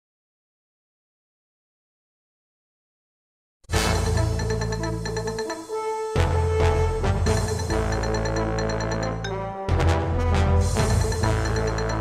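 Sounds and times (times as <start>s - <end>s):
news theme music: 3.7s - 12.0s.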